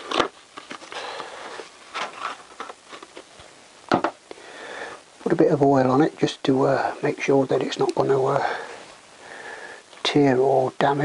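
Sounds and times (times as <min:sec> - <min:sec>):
packet crinkling and rustling: 0:00.0 - 0:03.6.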